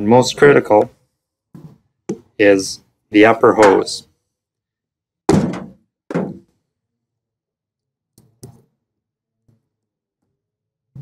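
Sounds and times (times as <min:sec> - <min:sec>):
dull thunks: 0:05.3 - 0:06.5.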